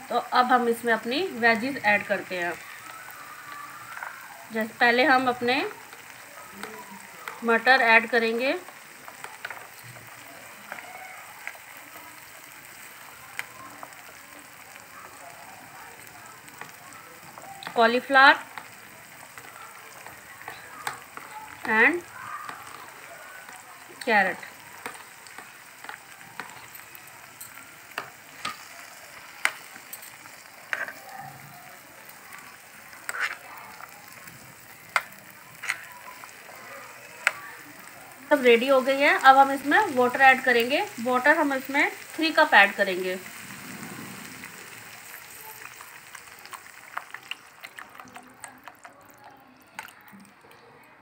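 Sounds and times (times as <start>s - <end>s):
food sizzling in frying pan: 0.0s - 50.9s
spatula scraping pan: 17.3s - 31.5s, 32.1s - 37.4s.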